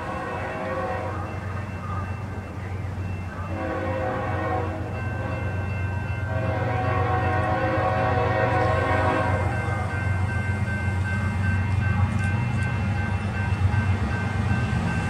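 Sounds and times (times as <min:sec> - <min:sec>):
locomotive air horn blasts: 0:00.0 - 0:01.3, 0:03.5 - 0:05.5, 0:06.3 - 0:09.6.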